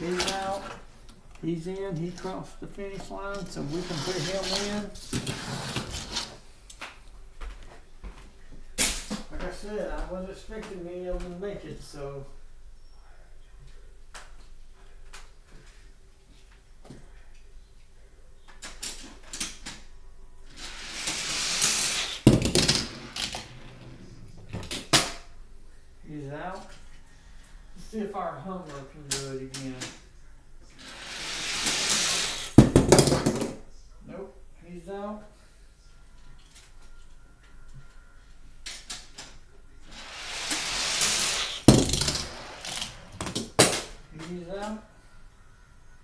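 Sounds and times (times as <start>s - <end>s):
toy car whirring down plastic track: 3.6s - 6.3s, 20.5s - 23.8s, 30.8s - 33.4s, 39.9s - 43.7s
toy car clattering: 20.6s - 23.7s, 40.0s - 43.9s.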